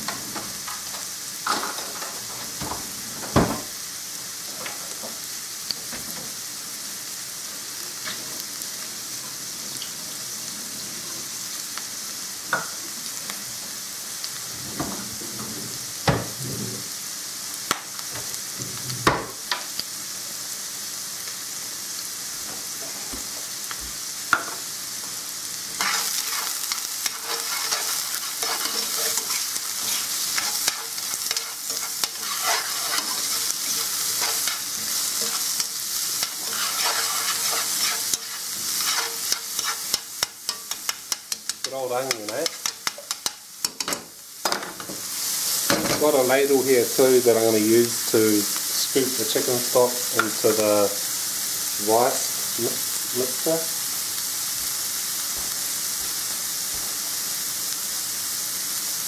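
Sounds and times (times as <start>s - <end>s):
vegetables sizzling in oil: 0.0s - 59.0s
utensil scraping against pan: 25.8s - 43.4s.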